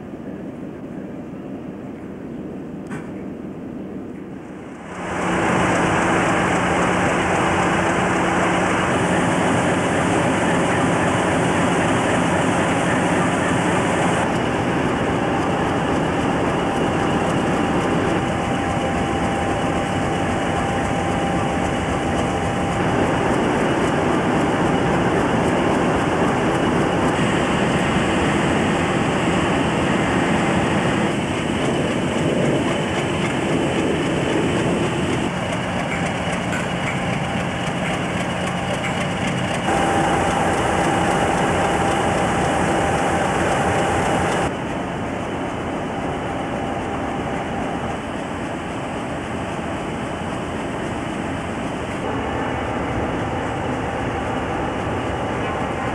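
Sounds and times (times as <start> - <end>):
diesel locomotive engines idling: 0.1 - 55.9
faint steady tones: 38.7 - 55.9.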